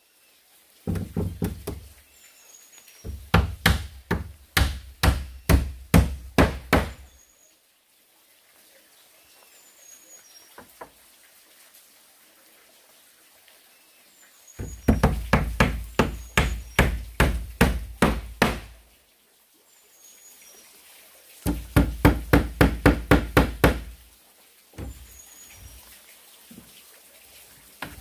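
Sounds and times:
hammer striking wood: 0.9s - 1.8s, 3.1s - 7.0s, 14.6s - 18.7s, 21.5s - 23.9s, 24.8s - 25.0s.

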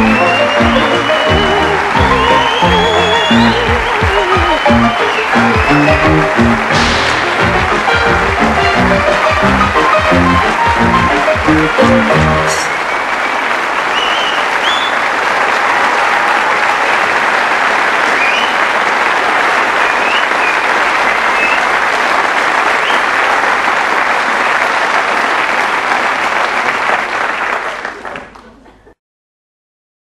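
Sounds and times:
audience applause: 0.0s - 29.0s
short high whistles: 13.9s - 15.0s.

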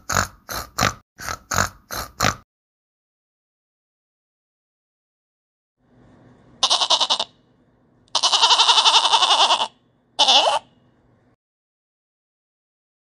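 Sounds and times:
goat bleating: 6.6s - 7.3s, 8.1s - 10.7s.

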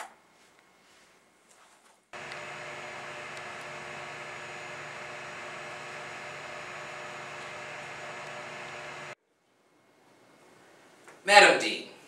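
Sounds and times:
electrical hum with hiss: 2.2s - 9.2s.

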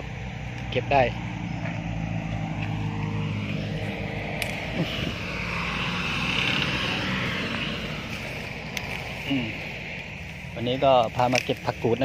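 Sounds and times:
low engine hum: 0.0s - 12.0s.

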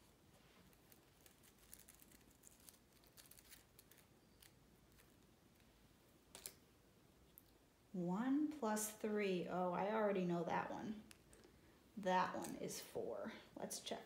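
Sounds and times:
paper rustling: 0.3s - 5.7s.

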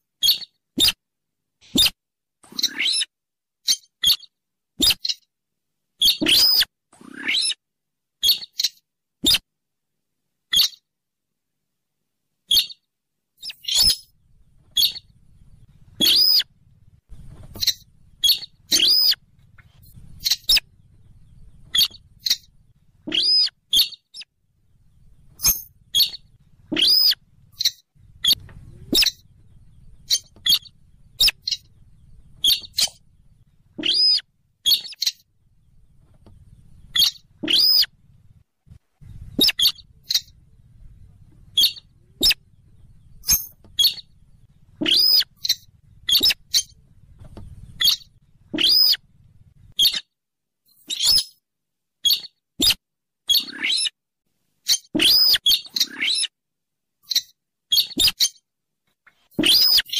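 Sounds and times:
bird squeaky calls: 0.2s - 1.0s, 1.7s - 5.3s, 6.0s - 7.6s, 8.2s - 9.4s, 10.5s - 10.8s, 12.5s - 12.8s, 13.4s - 14.1s, 14.7s - 15.1s, 16.0s - 16.5s, 17.3s - 24.3s, 25.3s - 35.2s, 36.7s - 38.0s, 39.1s - 40.4s, 41.5s - 42.4s, 43.0s - 44.2s, 44.8s - 46.8s, 47.6s - 49.0s, 49.7s - 50.1s, 50.8s - 51.4s, 52.0s - 54.0s, 54.6s - 56.3s, 57.0s - 58.4s, 59.4s - 59.9s
faint low hum: 13.5s - 49.8s.

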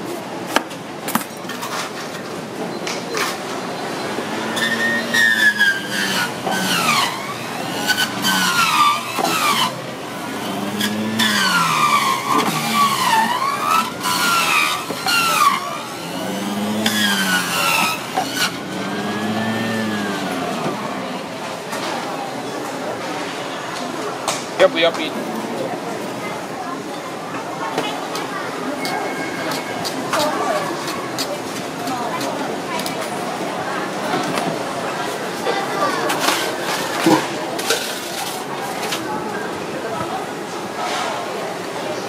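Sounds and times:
juicer motor whining: 4.0s - 21.4s.

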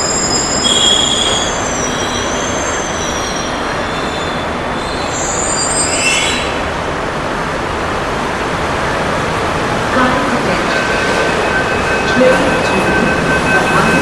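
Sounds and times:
train brakes squealing: 0.0s - 6.7s
train rumble: 0.0s - 14.0s.

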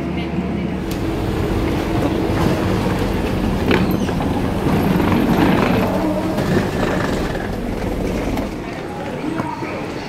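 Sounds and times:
busy railway station background: 0.0s - 10.0s
suitcase wheels rattling and clicking: 3.4s - 8.9s.

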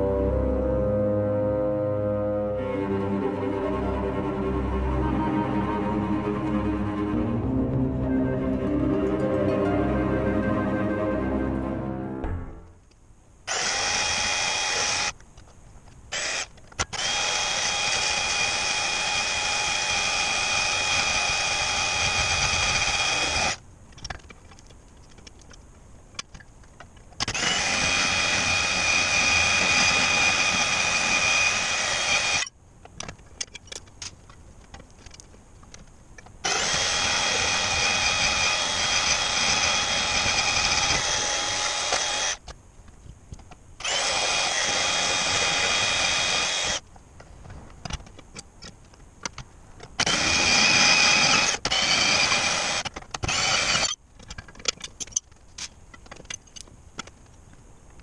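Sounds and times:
band saw cutting: 13.5s - 15.1s, 16.1s - 23.6s, 27.3s - 32.5s, 36.4s - 42.4s, 43.8s - 46.8s, 50.0s - 54.0s.

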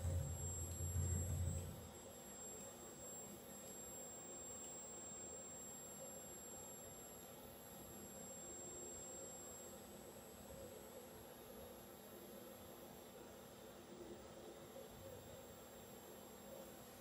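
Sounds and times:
high-pitched whine: 0.0s - 7.1s
faint room hum: 0.0s - 17.0s.

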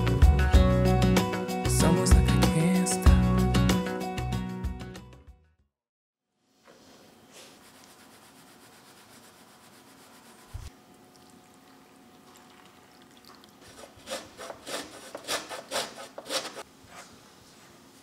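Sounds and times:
faint kitchen hiss: 6.3s - 14.0s, 16.6s - 18.0s
scratchy rubbing strokes: 6.7s - 10.7s, 13.6s - 17.3s.

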